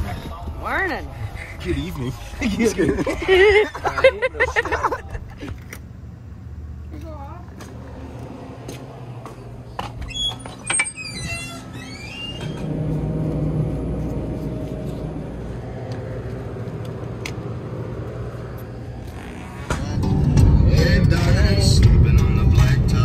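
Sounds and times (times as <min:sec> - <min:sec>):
steady low hum: 0:12.6 - 0:23.0.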